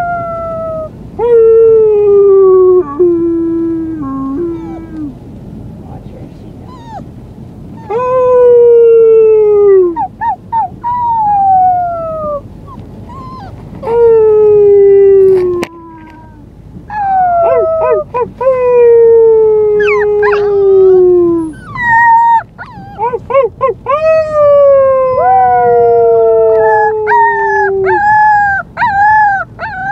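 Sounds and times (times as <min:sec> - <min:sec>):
puppy howling: 0:00.0 - 0:05.1, 0:06.7 - 0:07.1, 0:07.8 - 0:29.9
puppy yipping: 0:04.6 - 0:05.0, 0:06.7 - 0:07.1, 0:09.9 - 0:14.0, 0:16.9 - 0:18.4, 0:19.8 - 0:20.7, 0:21.3 - 0:25.7, 0:26.5 - 0:29.9.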